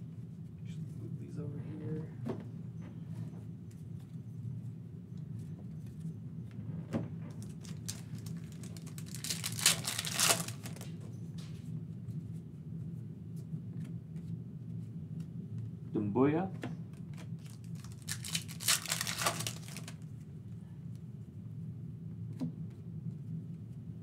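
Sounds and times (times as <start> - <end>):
steady low hum: 0.0 - 24.0
foil pack ripping: 7.4 - 10.9, 17.4 - 20.0.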